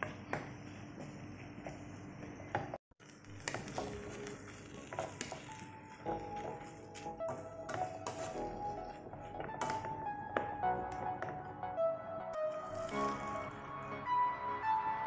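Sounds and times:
soft background music: 3.0 - 15.0.

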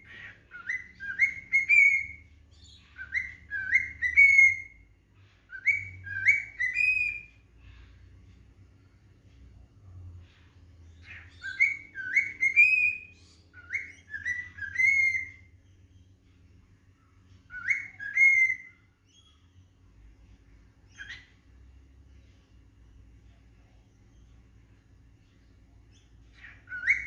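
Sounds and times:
cockatiel whistling: 0.0 - 4.9, 5.5 - 7.4, 11.0 - 15.5, 17.5 - 19.4, 20.9 - 21.4, 26.3 - 27.0.

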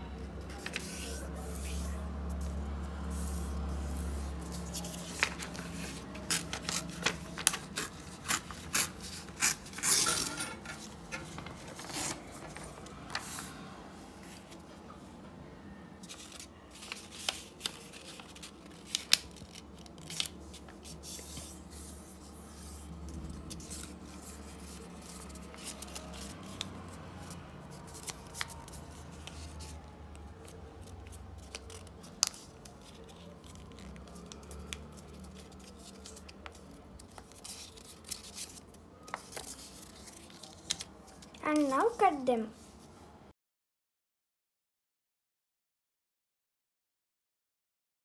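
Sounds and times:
paper folding and creasing: 0.4 - 13.6, 16.0 - 42.8
paper crackles and snaps: 3.6 - 10.1, 16.0 - 21.5, 23.0 - 41.8.

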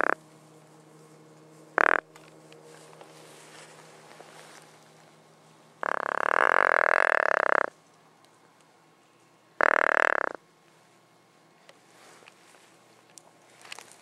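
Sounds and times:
deer grunt call: 1.8 - 2.0.

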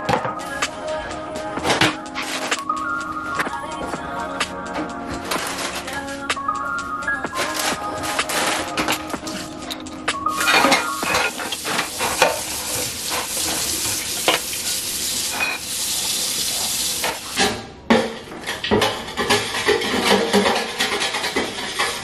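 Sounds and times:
dishes and cutlery clinking: 7.4 - 14.5, 15.3 - 15.7, 17.0 - 22.0
steady hiss: 10.4 - 17.4.

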